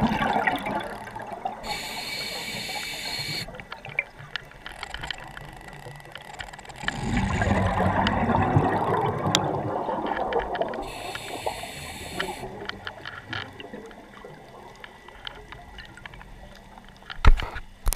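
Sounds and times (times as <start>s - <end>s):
exhaled bubbles gurgling: 0.0s - 4.2s, 6.8s - 16.8s
faint clicks: 0.8s - 8.2s, 10.1s - 17.9s
regulator inhale hiss: 1.6s - 3.5s, 10.8s - 12.7s.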